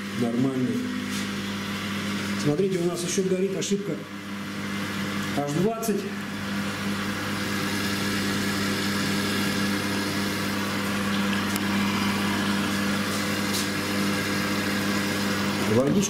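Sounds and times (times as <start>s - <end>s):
electrical hum: 0.0s - 16.0s
water rushing into washing machine: 4.2s - 16.0s.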